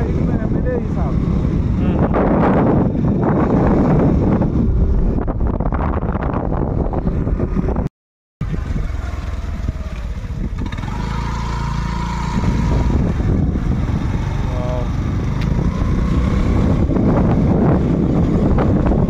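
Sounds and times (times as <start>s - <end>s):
motorcycle engine rumble: 0.0s - 19.0s
wind buffeting microphone: 0.0s - 19.0s.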